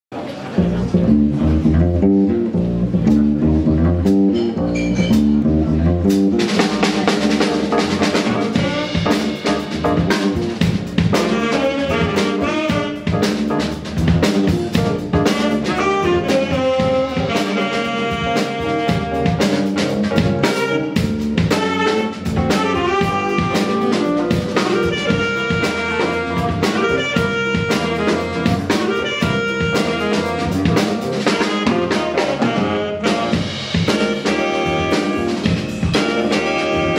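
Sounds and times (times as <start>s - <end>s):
drum kit: 0.6s - 36.9s
electric bass line: 0.6s - 36.9s
saxophones playing melody: 6.8s - 10.4s, 11.1s - 13.6s, 14.8s - 36.9s.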